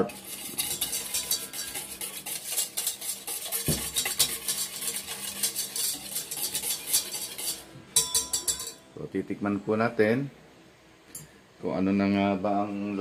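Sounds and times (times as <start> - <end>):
whisk scraping metal bowl: 0.0 - 8.8.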